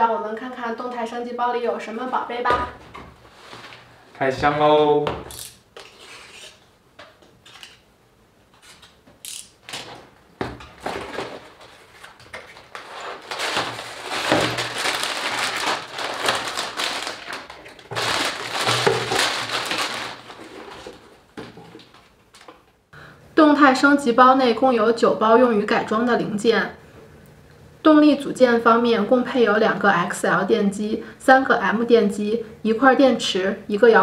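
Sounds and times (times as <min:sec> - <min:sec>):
plastic bags rustling: 0:10.7 - 0:22.6
cardboard box being opened: 0:10.8 - 0:21.1.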